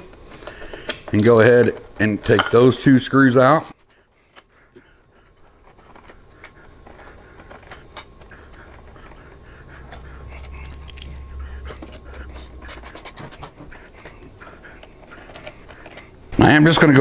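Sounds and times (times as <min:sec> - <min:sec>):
low hum: 0:03.8 - 0:16.4.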